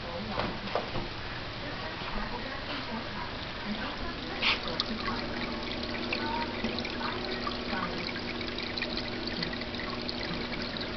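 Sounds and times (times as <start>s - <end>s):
low pump hum: 1.6s - 10.9s
aquarium water trickling and bubbling: 2.2s - 10.9s.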